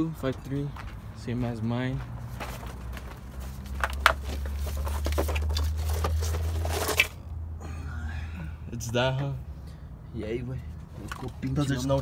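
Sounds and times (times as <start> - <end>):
rustling handling noise: 2.2 - 7.2.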